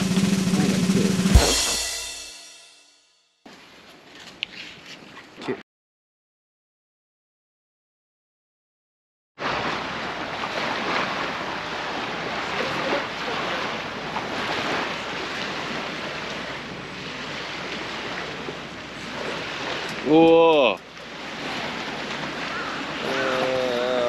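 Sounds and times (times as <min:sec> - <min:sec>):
water rushing: 0:09.4 - 0:24.0.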